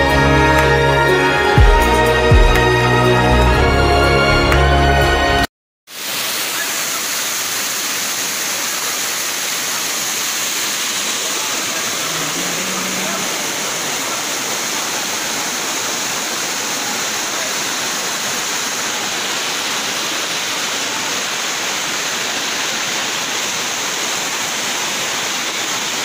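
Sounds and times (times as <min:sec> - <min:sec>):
waterfall rushing: 0:05.9 - 0:26.0.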